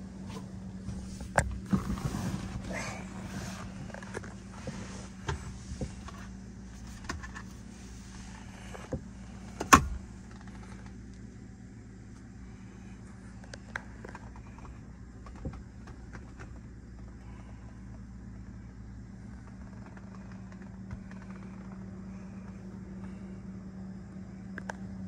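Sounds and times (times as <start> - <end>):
car engine idling: 0.0 - 25.0
clicks of interior trim: 0.2 - 11.2.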